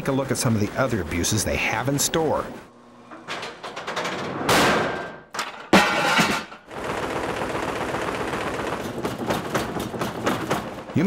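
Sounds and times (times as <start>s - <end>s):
loud impacts on boxed units: 3.2s - 11.0s.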